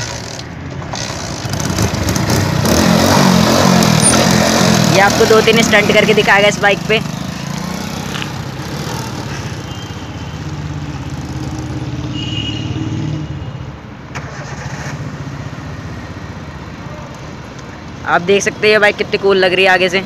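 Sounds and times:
motorcycle engine running: 0:00.0 - 0:09.4.

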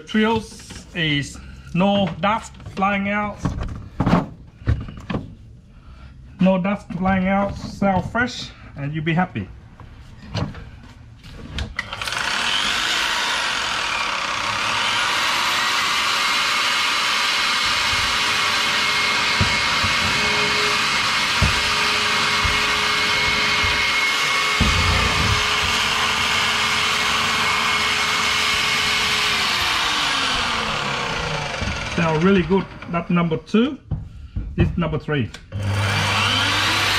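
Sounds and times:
electric motor whine: 0:11.8 - 0:32.9, 0:35.6 - 0:36.9.

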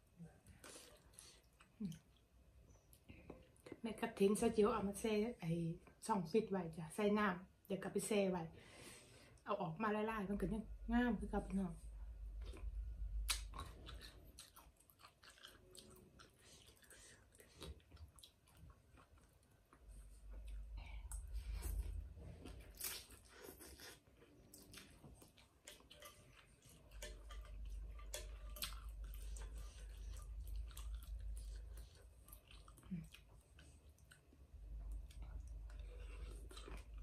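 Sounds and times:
chewing and smacking: 0:12.3 - 0:37.0.

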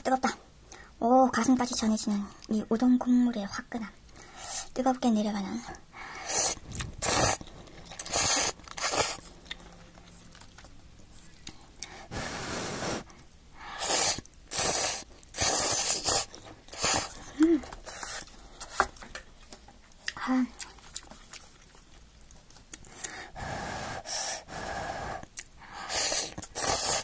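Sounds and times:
noodles being slurped: 0:06.2 - 0:09.3, 0:13.8 - 0:17.2, 0:25.4 - 0:27.0.

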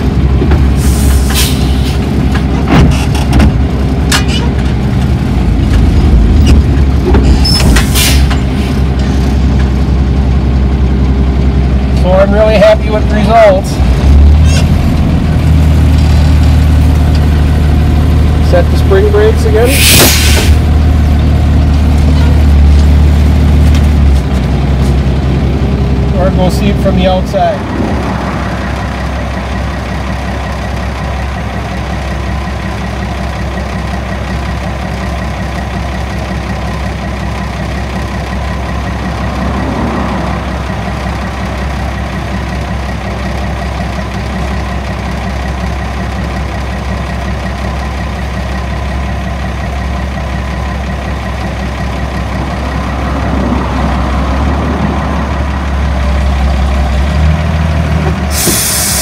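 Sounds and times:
truck engine idling: 0:00.0 - 0:59.0.

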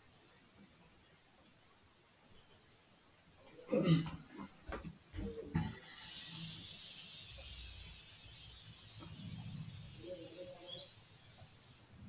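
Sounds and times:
high-pitched hiss: 0:05.2 - 0:12.0.

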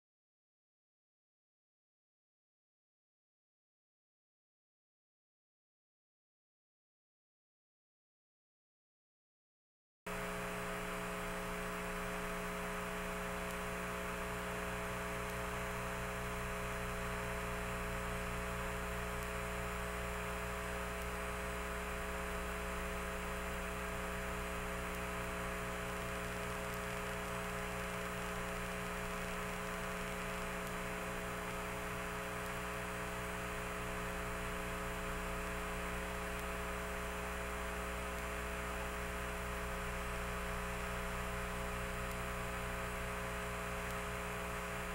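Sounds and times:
electrical hum with hiss: 0:10.1 - 0:44.9.

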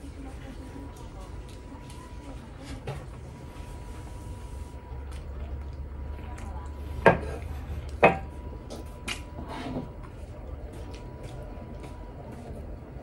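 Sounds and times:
low steady hum: 0:00.0 - 0:13.0
ceramic dishes clacking: 0:08.0 - 0:08.3.

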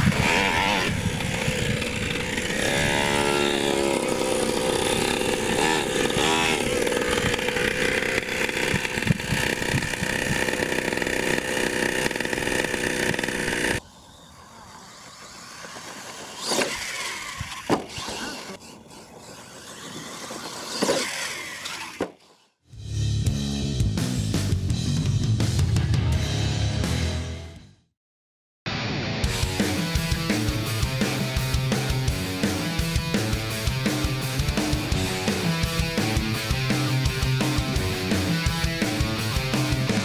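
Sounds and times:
small two-stroke engine revving: 0:00.0 - 0:22.5, 0:33.8 - 0:40.0.

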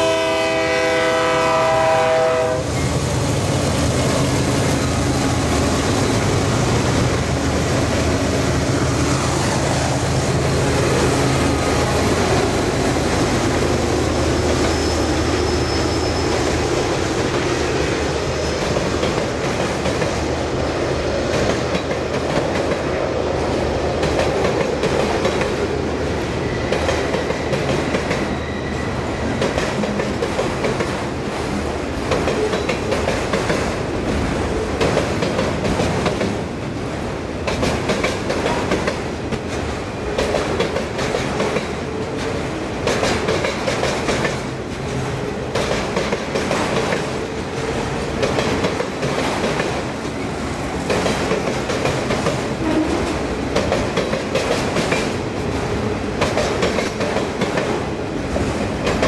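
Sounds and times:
freight cars rumbling and rattling: 0:02.7 - 0:59.0
train wheels clicking over rail joints: 0:16.3 - 0:20.4, 0:21.2 - 0:23.0, 0:23.9 - 0:28.4, 0:29.2 - 0:31.1, 0:32.0 - 0:36.6, 0:37.4 - 0:59.0.

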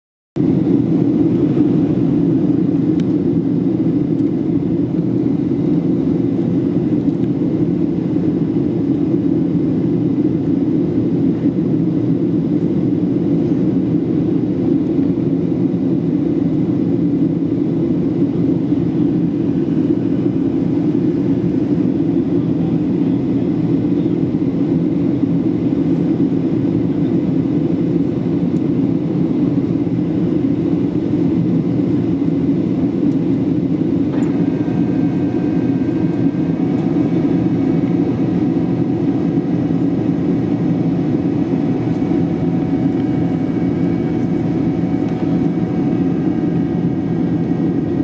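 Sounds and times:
airflow over fuselage: 0:00.4 - 0:48.0
airplane cabin engine drone: 0:00.4 - 0:48.0.

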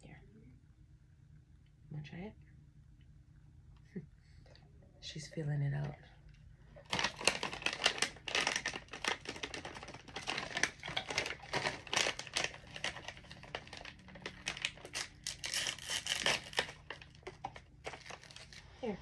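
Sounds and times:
plastic pouch crinkling: 0:06.8 - 0:18.7.

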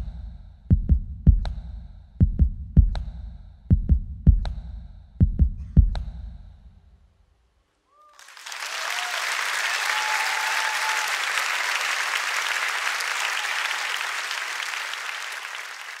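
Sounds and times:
audience cheering: 0:07.9 - 0:16.0
audience applauding: 0:08.1 - 0:16.0.

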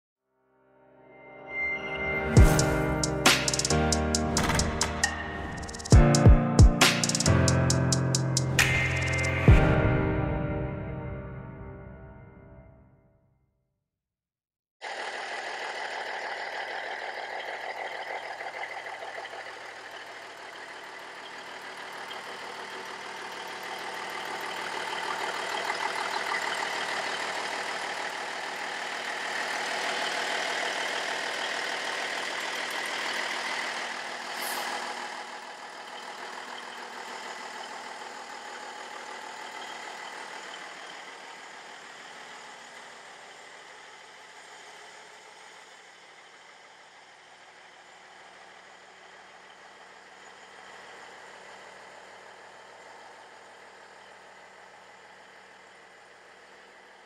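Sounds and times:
diesel truck engine idling: 0:14.8 - 0:57.0.

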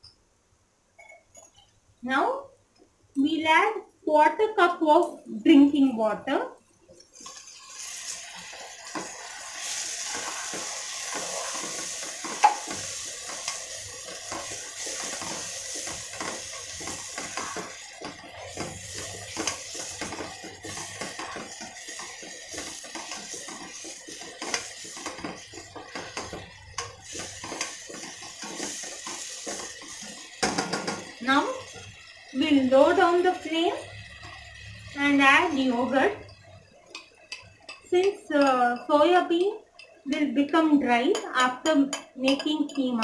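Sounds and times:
simmering sizzle: 0:00.0 - 0:43.0
spoon scraping pot: 0:07.2 - 0:31.7
spoon knocking pot: 0:10.5 - 0:31.2, 0:36.2 - 0:40.0, 0:41.1 - 0:43.0.

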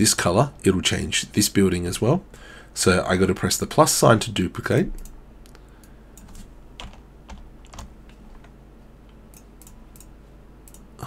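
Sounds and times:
keyboard and mouse clicks: 0:06.2 - 0:10.9.

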